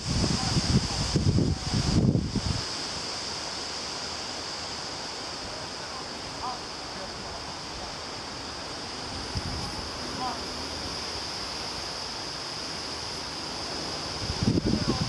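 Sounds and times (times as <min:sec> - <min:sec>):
wind buffeting microphone: 0:00.0 - 0:03.2, 0:09.1 - 0:11.4, 0:13.6 - 0:15.0
outdoor background hiss: 0:00.0 - 0:15.0.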